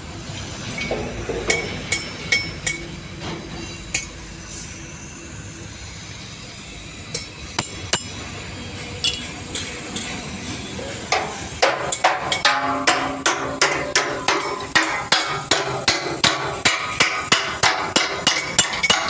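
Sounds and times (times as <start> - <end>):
hammer striking metal tank: 0.8 - 2.8, 7.6 - 8.2, 11.1 - 19.0.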